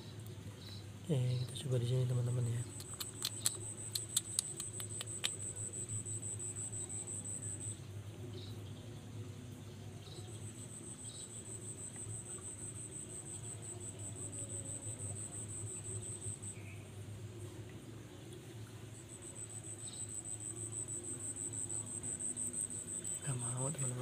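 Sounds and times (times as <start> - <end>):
low steady hum: 0.0 - 24.0
insect trilling: 2.4 - 7.8, 10.6 - 16.7, 19.0 - 24.0.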